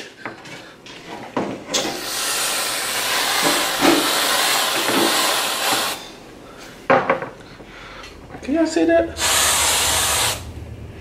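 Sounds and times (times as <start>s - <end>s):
aerosol can hissing: 1.9s - 6.1s, 9.2s - 10.5s.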